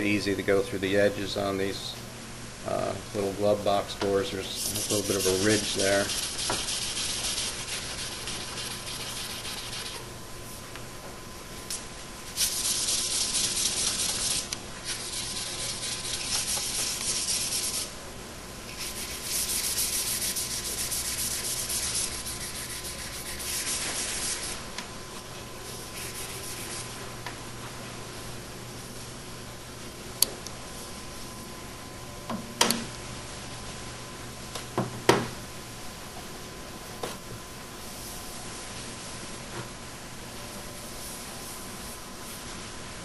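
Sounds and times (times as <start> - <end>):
sandpaper scratching: 4.6 - 10.0, 12.4 - 17.9, 18.8 - 24.6, 26.0 - 26.9.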